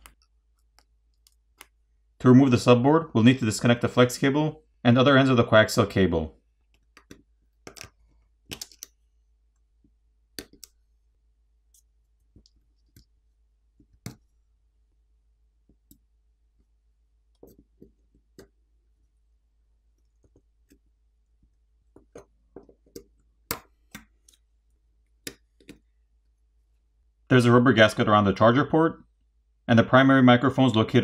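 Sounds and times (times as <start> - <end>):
tools clicking on phone parts: 6.7 - 9.0.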